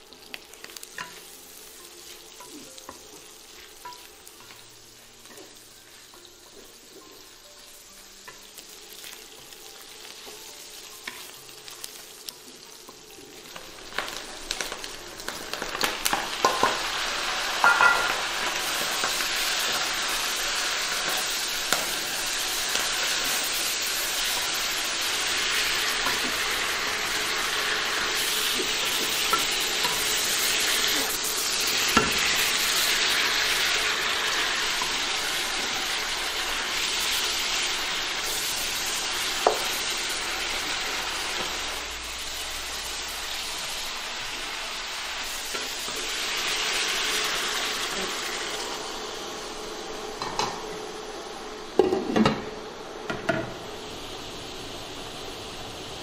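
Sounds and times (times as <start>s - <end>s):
food sizzling in a wok: 0.0s - 56.0s.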